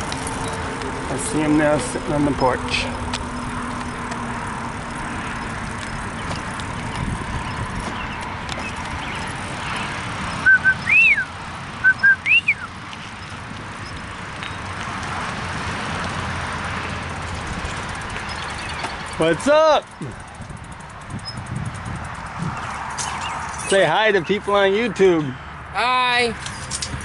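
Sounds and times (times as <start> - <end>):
steady vehicle noise: 0.0 - 27.0
person whistling a call: 10.4 - 12.7.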